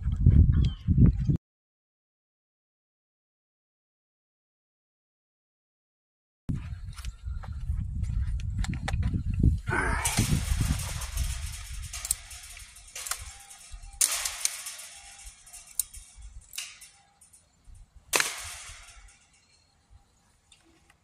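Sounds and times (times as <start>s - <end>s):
rustling rumble: 6.5s - 19.6s
metal knocks and rattles: 10.0s - 19.7s.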